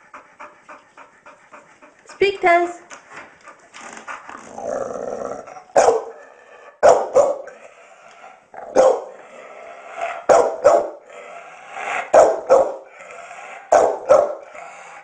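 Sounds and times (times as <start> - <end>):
dog barking: 5.7 - 7.6, 8.7 - 9.2, 10.1 - 11.0, 11.9 - 12.9, 13.6 - 14.5.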